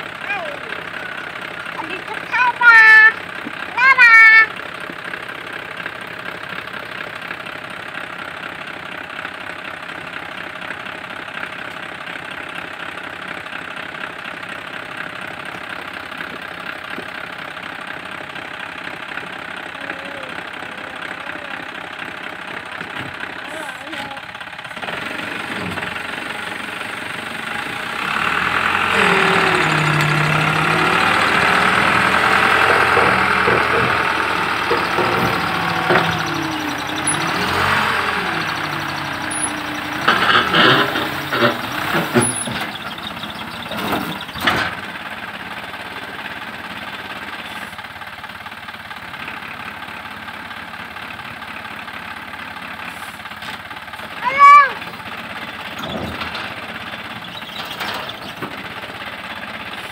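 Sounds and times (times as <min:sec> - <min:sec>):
truck engine revving: 0:19.4 - 0:50.1, 0:51.9 - 0:59.9.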